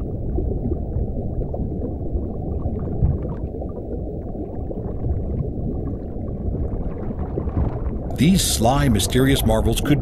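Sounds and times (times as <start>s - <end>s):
muffled underwater rumble: 0.0s - 10.0s.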